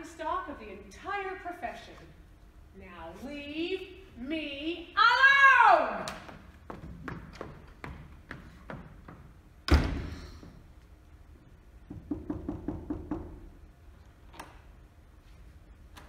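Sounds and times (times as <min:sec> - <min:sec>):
door slamming shut: 0:09.7 - 0:10.3
hollow knocks: 0:11.9 - 0:13.4.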